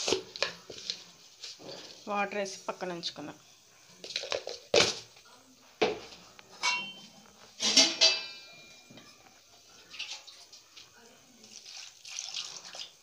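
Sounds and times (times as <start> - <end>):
kitchen containers clattering: 6.6 - 9.2.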